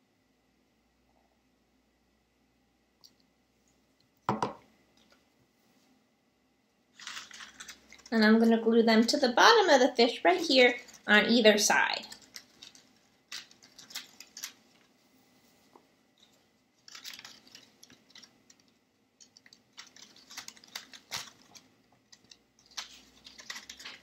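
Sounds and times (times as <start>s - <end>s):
paper rustling and crinkling: 7.0s - 8.5s, 10.4s - 24.0s
small clicks: 12.0s - 14.9s, 16.2s - 24.0s.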